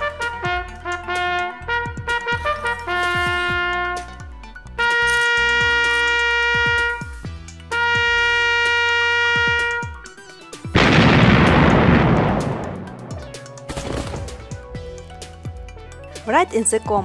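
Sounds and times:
trumpet holding long notes: 0.0 - 4.2, 4.8 - 10.0
loud noisy burst: 10.8 - 13.2.

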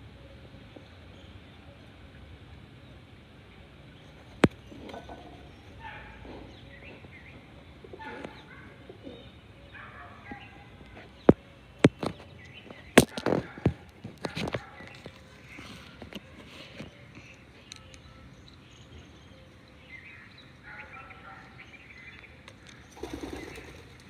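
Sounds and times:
small birds chirping: 0.0 - 24.0
pigeons cooing: 4.0 - 17.9, 19.1 - 24.0.

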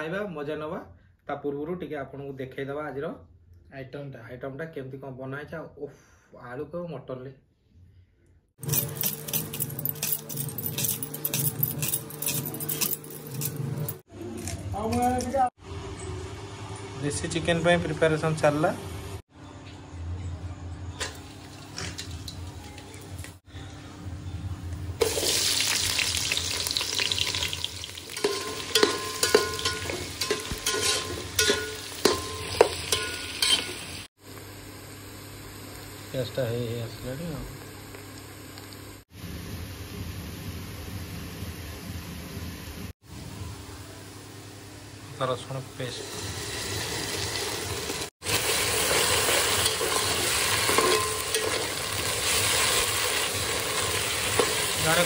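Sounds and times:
onions sizzling in hot oil: 25.0 - 34.1, 46.0 - 55.0
metal spoon clanking on pot: 27.2 - 33.9, 48.9 - 52.1.

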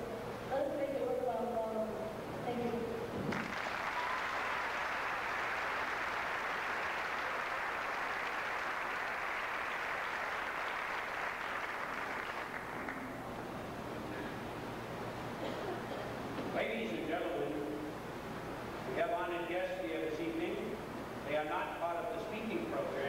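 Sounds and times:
audience clapping: 3.3 - 13.4.

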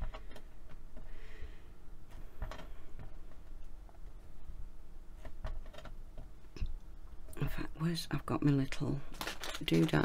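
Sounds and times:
clay tapping and clicking: 0.0 - 1.1, 2.1 - 4.3, 5.2 - 7.4.

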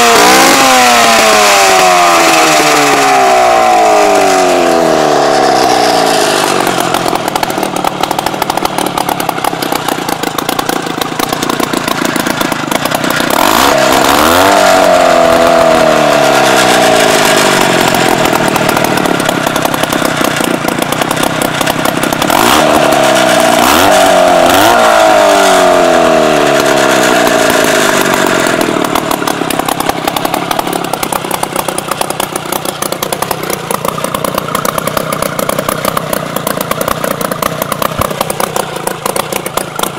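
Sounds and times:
two-stroke engine revving: 0.0 - 39.9.

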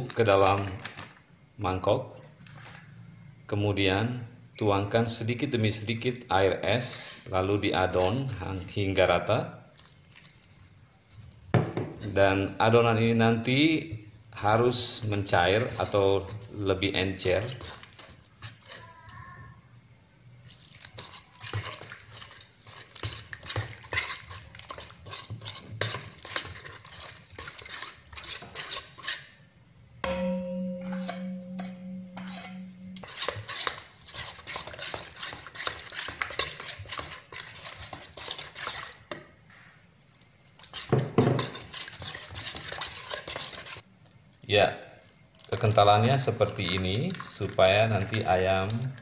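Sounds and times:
metal spoon scraping steel bowl: 7.8 - 9.2, 14.5 - 19.0, 20.5 - 29.4, 30.0 - 39.1, 40.6 - 43.9, 45.6 - 49.0
steady low hum: 29.7 - 33.2.

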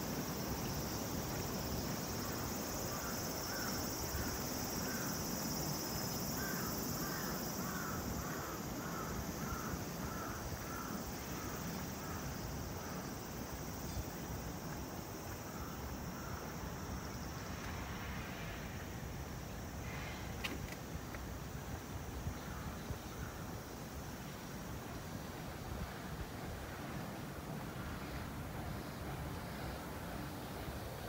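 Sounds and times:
high insect drone: 0.0 - 31.0
crow cawing: 6.4 - 12.2.

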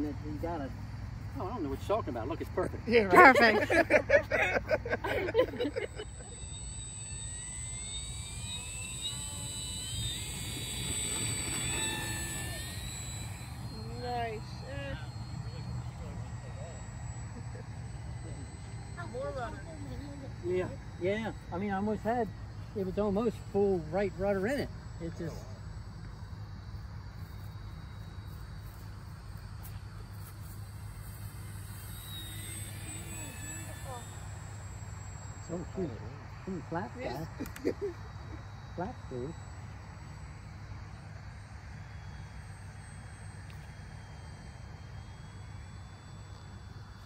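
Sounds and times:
crickets chirping: 0.0 - 47.0
low steady hum: 0.0 - 47.0
model plane electric motor whine: 0.0 - 47.0.

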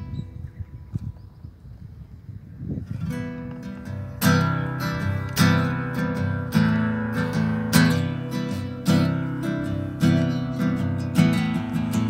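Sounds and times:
classical guitar strummed: 2.9 - 12.0.

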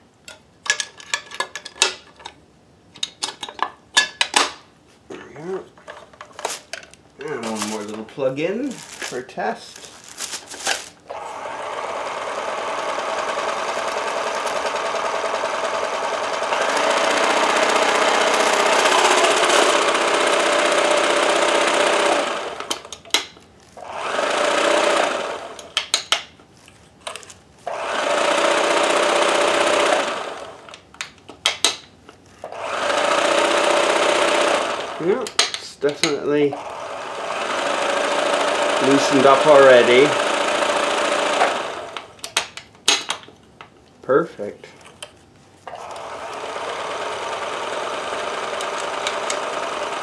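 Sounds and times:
sewing machine running: 11.1 - 22.9, 23.8 - 25.7, 27.7 - 30.7, 32.4 - 35.3, 36.5 - 42.2, 45.7 - 50.0.

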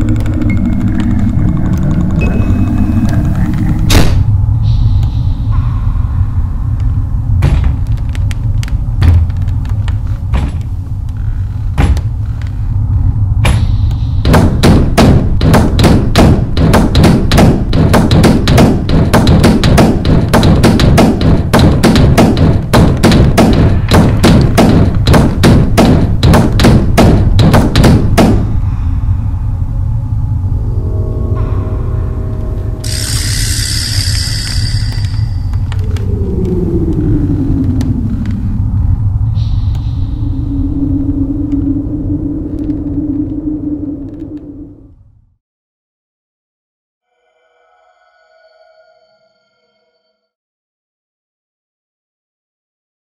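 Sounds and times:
deep drone: 0.0 - 45.4
heavy thuds pounding: 7.4 - 11.0, 11.7 - 12.4, 13.4 - 28.6.

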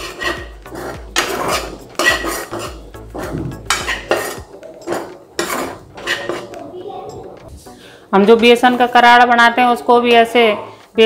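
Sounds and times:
steel ladle scraping a pan: 0.0 - 6.6.

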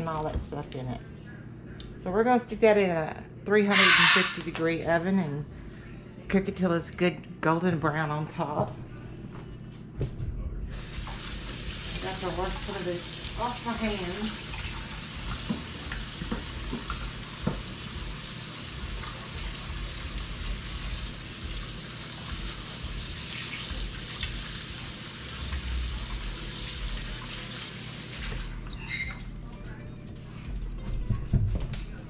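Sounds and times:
faucet running: 10.7 - 29.4.

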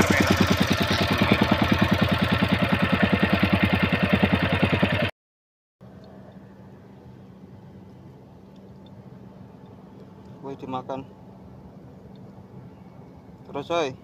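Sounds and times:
boat engine pulsing: 0.0 - 5.1.

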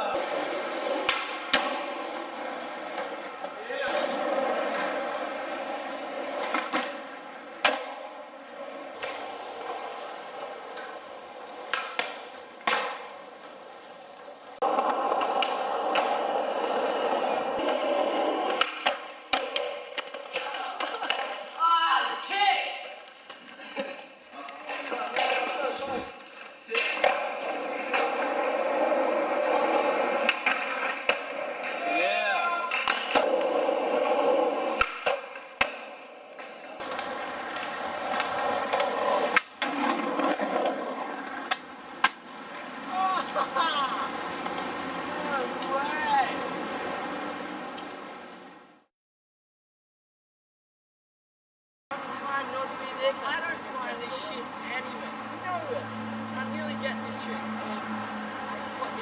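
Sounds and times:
skateboard wheels rolling on concrete: 0.0 - 48.9, 51.9 - 59.0
skateboard clacking on ground: 0.1 - 21.6, 22.8 - 43.4.

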